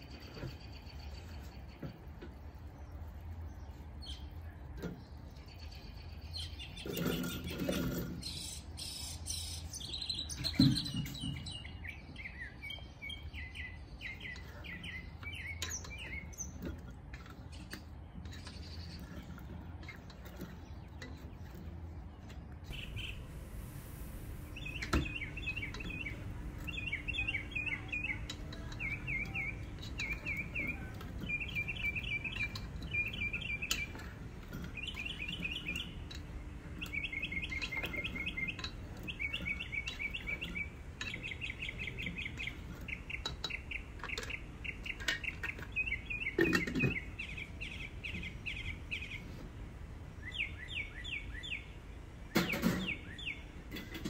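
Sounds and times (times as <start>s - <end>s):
small bird chirping: 2.7s - 16.7s, 22.7s - 49.5s, 50.2s - 51.8s.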